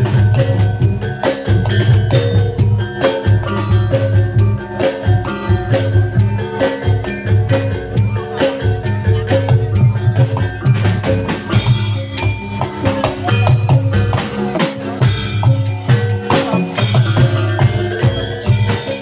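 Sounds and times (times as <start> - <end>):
drum beat: 0.0 - 19.0
metallophones ringing: 0.0 - 19.0.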